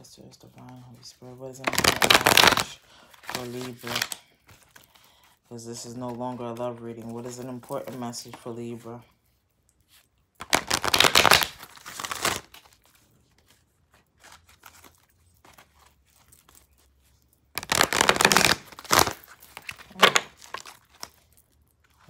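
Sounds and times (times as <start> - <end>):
handling deck of cards: 0.4 - 22.0
rapid card shuffling: 1.6 - 4.9, 10.4 - 13.6, 14.2 - 20.8.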